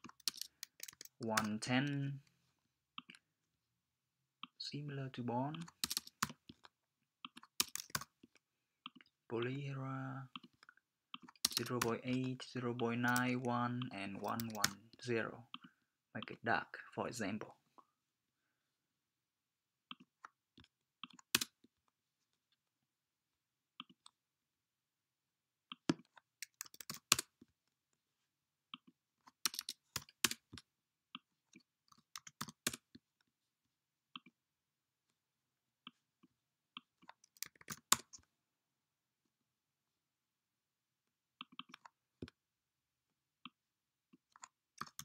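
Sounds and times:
keyboard key presses: 5.5 - 9.1, 11.2 - 12.2, 13.0 - 14.8, 25.7 - 27.3.

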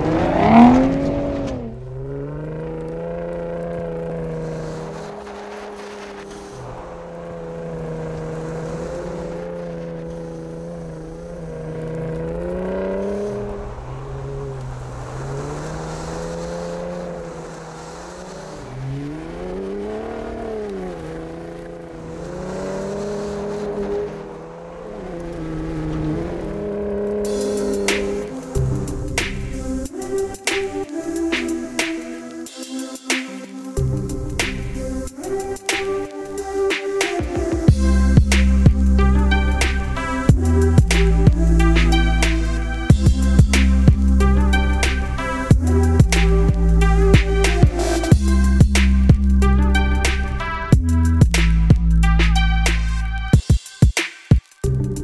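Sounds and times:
car engine revving then running: 0.0 - 30.4, 37.4 - 53.4.

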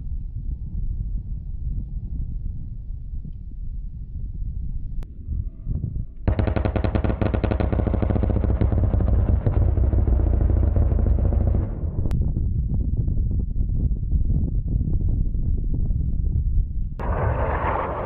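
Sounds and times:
low rumble: 0.0 - 18.0
rotary cannon firing burst: 6.3 - 12.1, 17.0 - 18.0.

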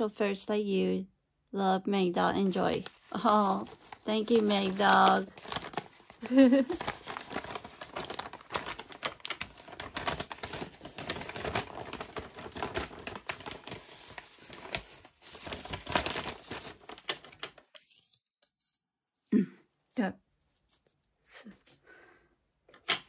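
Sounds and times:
plastic packaging crinkling: 2.4 - 18.8.

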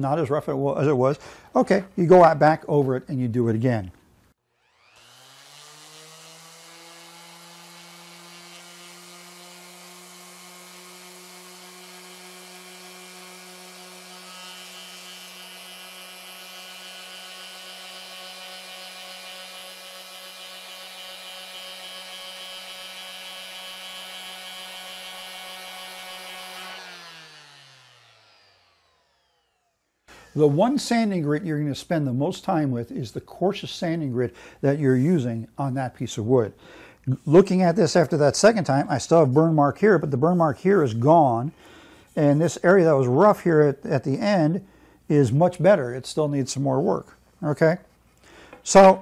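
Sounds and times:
orbital sander on wood: 4.6 - 31.4.

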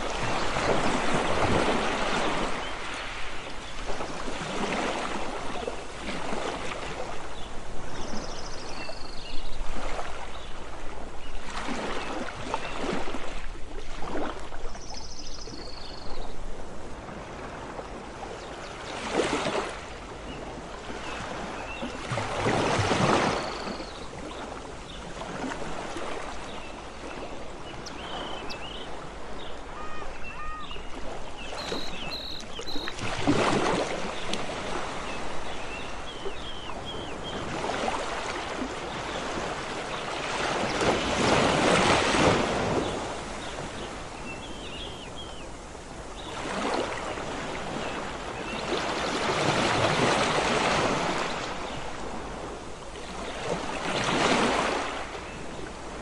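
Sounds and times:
sea waves washing onto beach: 0.0 - 15.6, 16.3 - 56.0.

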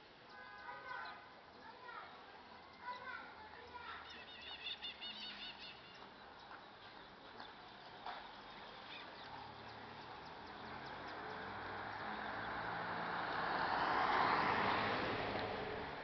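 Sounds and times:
car driving past: 8.3 - 16.0.

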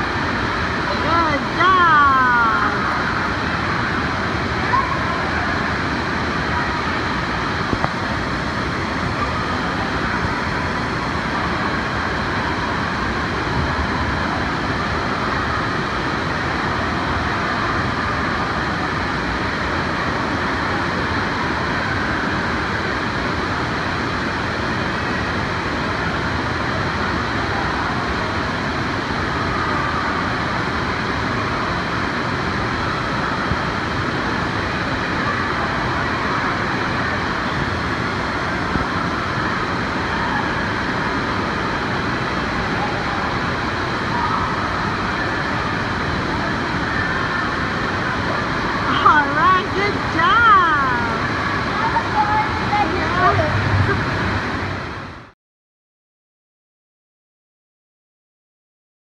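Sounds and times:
crowd noise: 0.0 - 55.3.

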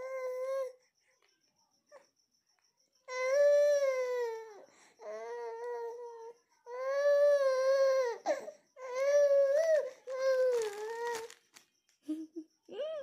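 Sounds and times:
baby crying: 3.1 - 11.4.

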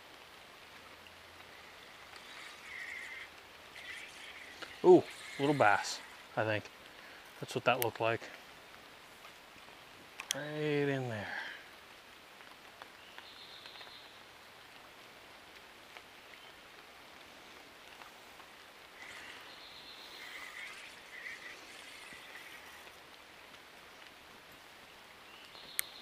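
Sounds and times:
light rain on water: 0.0 - 26.0
faint high calls: 1.4 - 6.4, 18.9 - 23.0.

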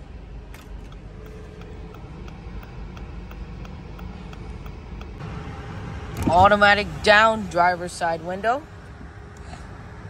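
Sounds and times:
car engine idling: 0.0 - 10.0
hazard flashers ticking: 0.6 - 5.2.

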